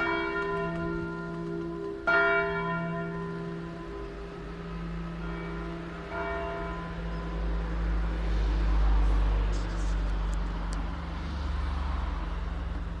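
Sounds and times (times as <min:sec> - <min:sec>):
large church bell strike: 0:00.0 - 0:08.3.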